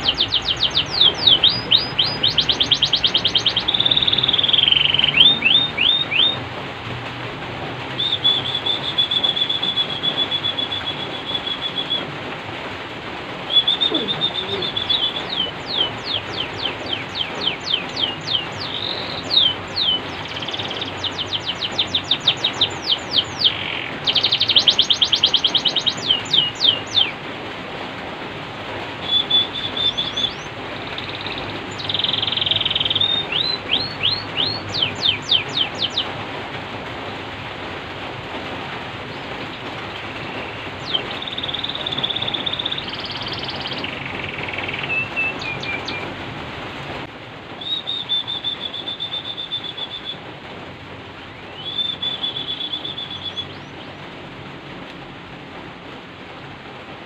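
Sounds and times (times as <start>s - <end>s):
canary singing: 0.0s - 6.4s, 7.9s - 12.1s, 13.4s - 27.2s, 29.0s - 36.3s, 39.0s - 46.2s, 47.6s - 50.2s, 51.4s - 54.0s.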